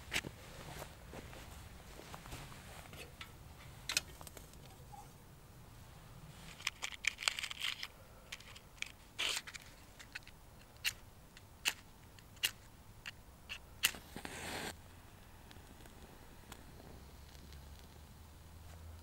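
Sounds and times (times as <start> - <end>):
metal stove clinking and scraping: 2.8 - 4.1
fire-lighting tool clicks and scrapes: 6.5 - 14.8.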